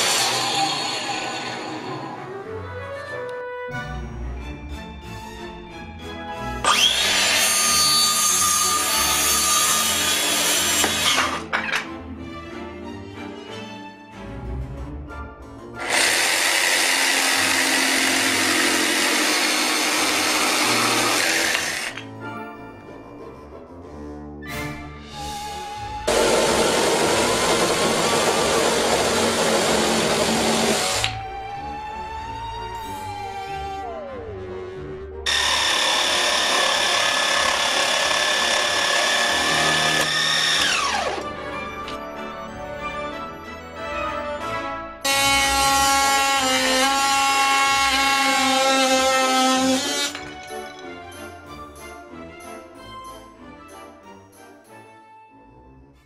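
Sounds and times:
electric jigsaw sawing wood: 0.0 - 1.9, 6.6 - 11.5, 15.8 - 22.0, 26.1 - 31.2, 35.3 - 41.4, 45.0 - 50.5.

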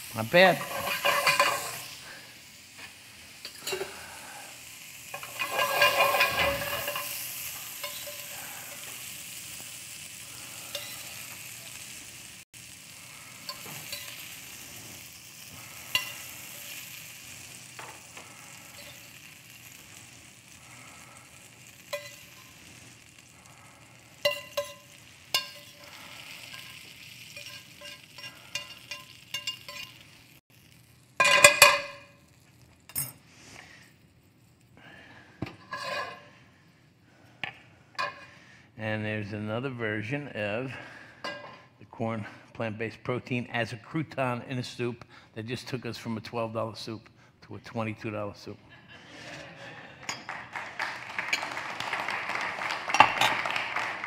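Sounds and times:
vegetables sizzling in oil: 0.0 - 33.8, 50.8 - 54.0.

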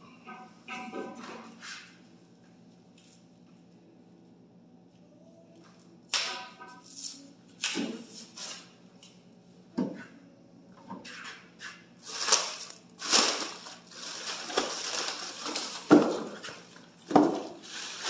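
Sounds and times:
plastic wrap crinkling: 12.0 - 18.0.

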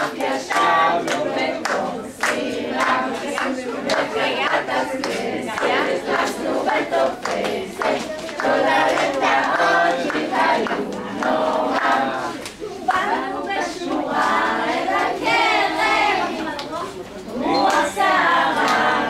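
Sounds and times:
hand clapping: 0.0 - 13.1, 18.6 - 18.9
children singing and calling out: 0.0 - 19.0.

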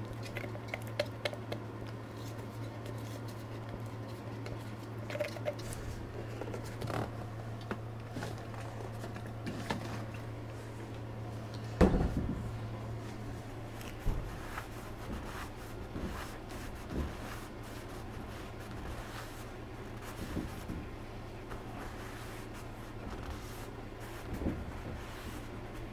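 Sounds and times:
steady low hum: 0.0 - 25.9
epoxy stirred in a cup: 0.2 - 5.7.

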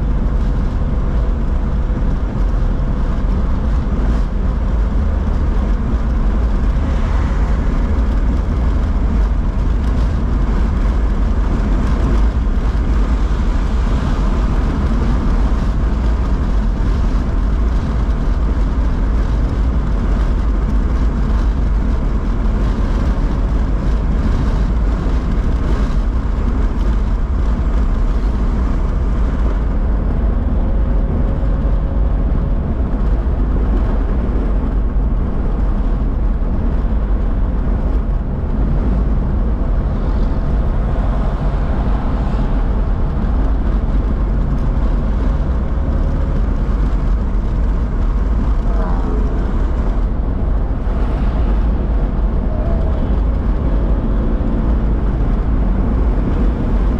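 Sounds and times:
car engine rumble inside cabin: 0.0 - 56.9
tyres on wet pavement: 0.0 - 56.9.

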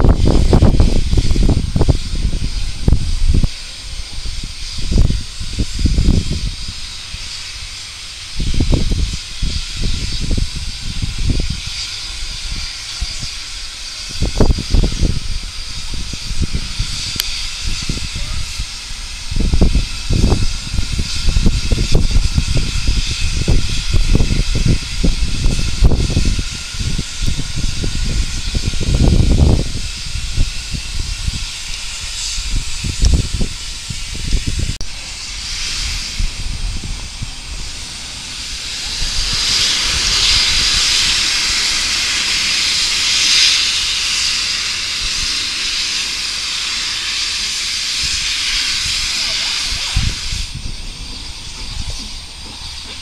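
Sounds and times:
low rumbling: 0.0 - 53.0
steam locomotive hissing: 0.0 - 53.0.

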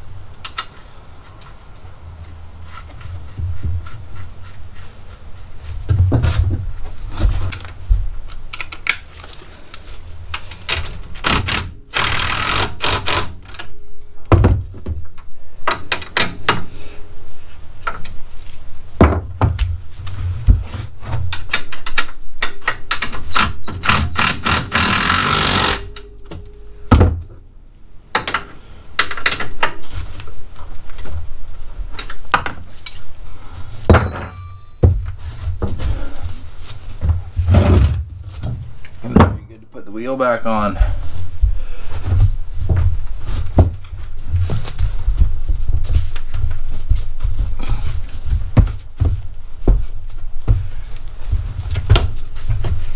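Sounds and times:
rapid ratchet clicking: 11.2 - 13.4, 23.8 - 26.0
metal clanks and knocks: 33.9 - 35.9.

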